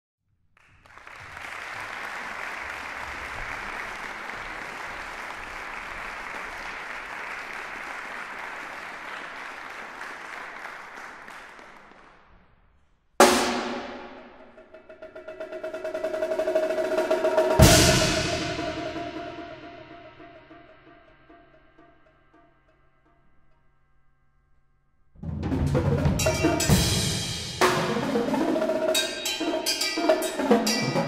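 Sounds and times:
audience applause: 0.6 - 12.2
quick drum strokes: 25.2 - 31.0.

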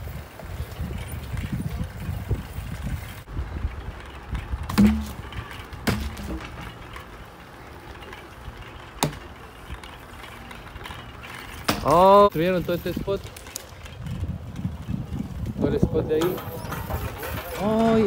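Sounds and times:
bike rolling over concrete: 0.0 - 18.0
sharp knocks: 4.7 - 5.2.

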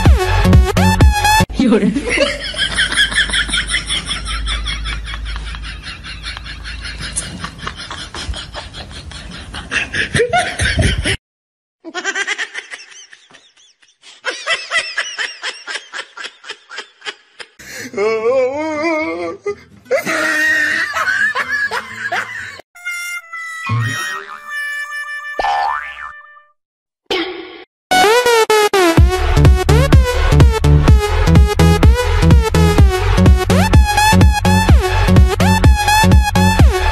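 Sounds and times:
rapid rhythmic laughter: 2.0 - 11.2
wavering sing-song laugh: 2.0 - 11.2, 19.9 - 22.6.

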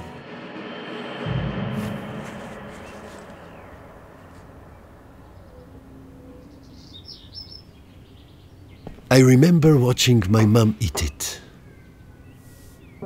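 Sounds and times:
music: 0.0 - 6.8
faint bird chirps: 2.8 - 9.0, 11.4 - 13.0.

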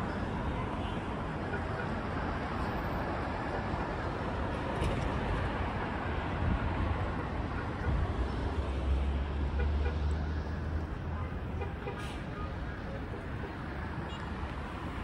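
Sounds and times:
city road traffic: 0.0 - 15.0.

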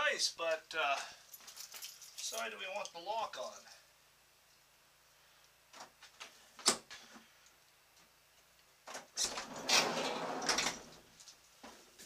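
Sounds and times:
sliding door rolling on track: 9.2 - 11.0.

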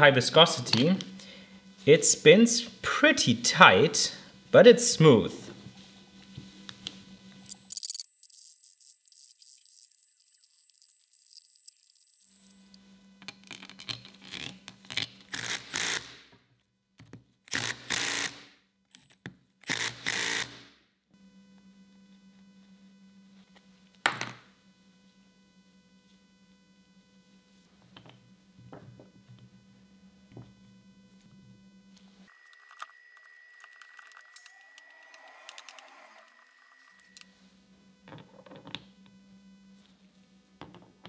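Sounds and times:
metal parts clinking and clicking: 7.5 - 12.2, 13.2 - 15.7.

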